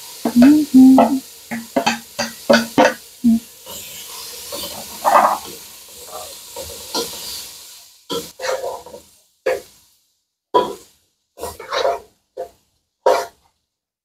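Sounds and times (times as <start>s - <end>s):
bacon sizzling in a pot: 0.0s - 13.8s
wooden spatula scraping pot: 11.4s - 12.5s.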